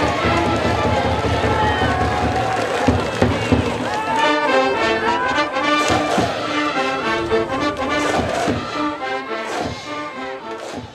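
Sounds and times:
brass band playing: 0.0s - 2.4s, 3.1s - 10.8s
drum strikes: 5.7s - 6.5s, 7.9s - 8.8s.

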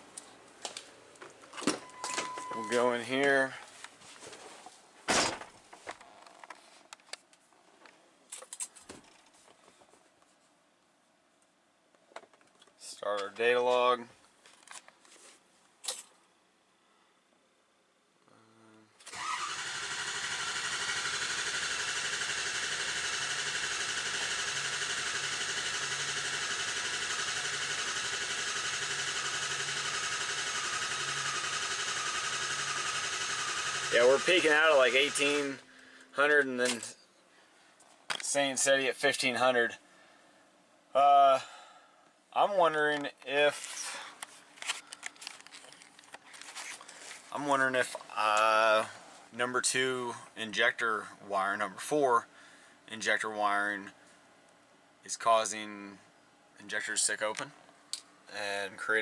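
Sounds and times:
starter cranking diesel engine: 19.0s - 35.6s.

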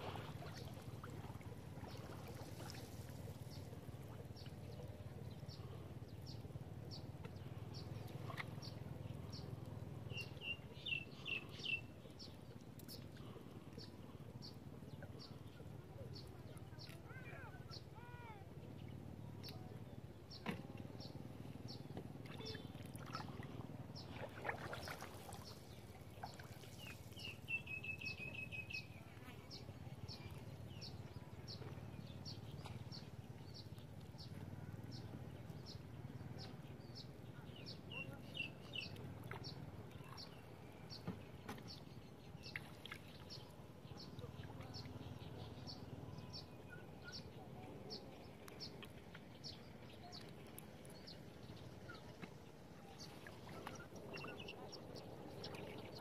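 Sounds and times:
low background hum: 0.0s - 56.0s
bird chirping: 10.1s - 11.9s, 26.2s - 28.9s.

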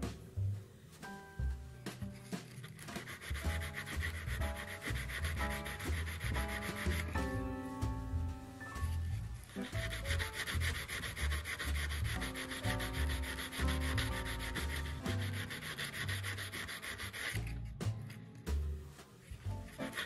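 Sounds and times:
sandpaper rasping on metal edge: 1.9s - 7.4s, 8.8s - 17.7s, 19.4s - 20.0s.

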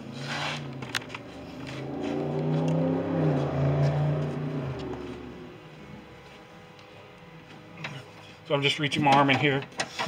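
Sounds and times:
vehicle engine running: 0.0s - 7.7s.

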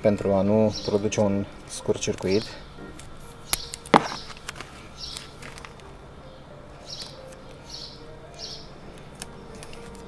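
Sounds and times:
small bird chirping: 3.5s - 4.4s, 5.0s - 5.4s, 6.2s - 8.8s.

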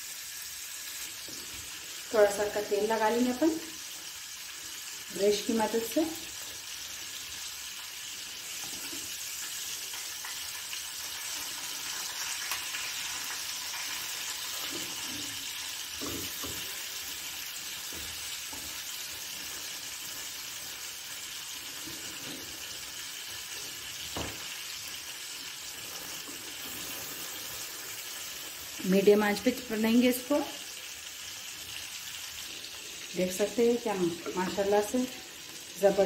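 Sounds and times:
chicken sizzling in hot oil: 0.0s - 36.0s
tap: 24.2s - 24.4s.

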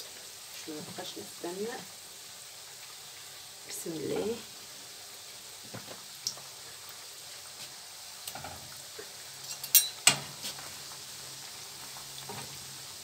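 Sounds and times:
dough sizzling in hot oil: 0.0s - 13.0s
forks clicking against pan: 9.5s - 10.0s.

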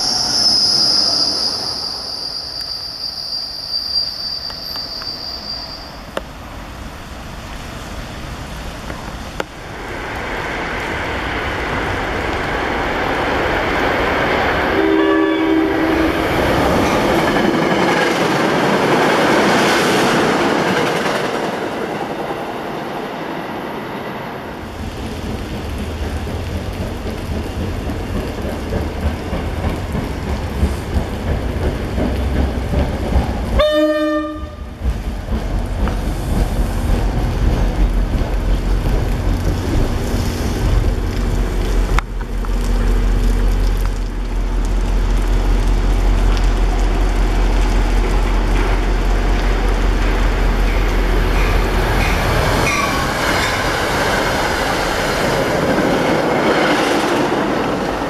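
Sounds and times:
train rumbling and rattling: 0.0s - 58.0s
train horn blast: 14.7s - 16.4s, 33.6s - 34.8s.

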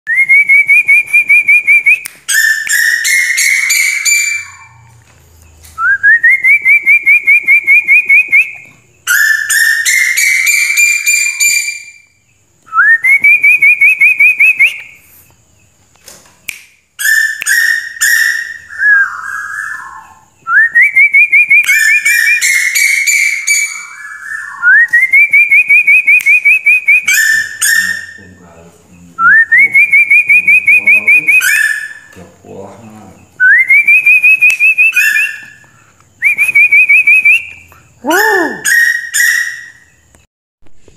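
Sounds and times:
bird trilling call: 0.8s - 4.9s, 5.9s - 12.0s, 17.0s - 20.3s, 20.9s - 28.6s, 29.6s - 32.2s, 33.2s - 40.0s.

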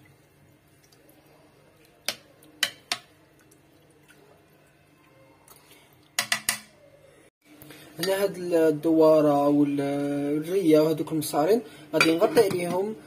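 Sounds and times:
hands mixing food in a pot: 0.0s - 6.8s.

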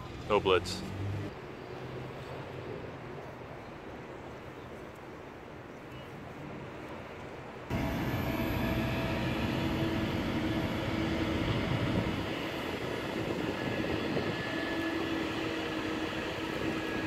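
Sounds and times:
city street traffic rumble: 0.0s - 17.0s.

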